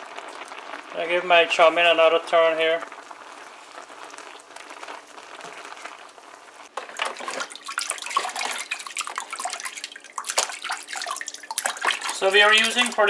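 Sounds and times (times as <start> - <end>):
noodles bubbling in boiling pot: 0.0 - 13.0
water splashing in a bowl: 6.8 - 13.0.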